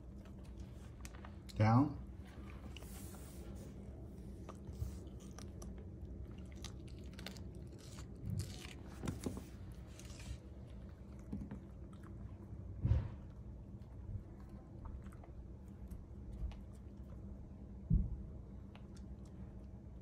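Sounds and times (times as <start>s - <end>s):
puppy crunching bell pepper: 4.0s - 12.8s
low thump: 12.8s - 13.4s.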